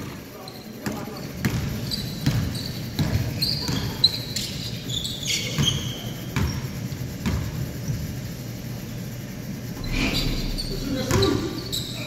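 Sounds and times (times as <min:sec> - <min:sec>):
sneakers squeaking on floor: 0:00.0 - 0:08.3, 0:09.7 - 0:12.0
basketball bouncing on hardwood: 0:00.8 - 0:04.0, 0:07.2 - 0:08.0.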